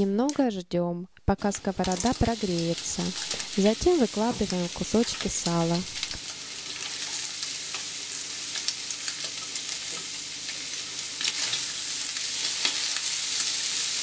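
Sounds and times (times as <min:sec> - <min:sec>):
fat popping and crackling: 0:01.2 - 0:06.2
fat sizzling in a frying pan: 0:01.4 - 0:14.0.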